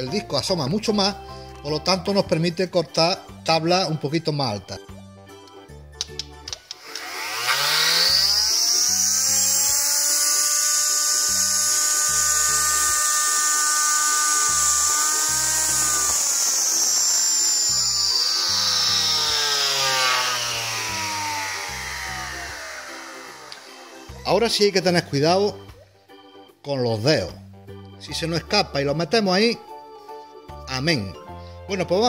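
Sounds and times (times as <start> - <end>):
table saw motor whining: 6.8 - 25.7.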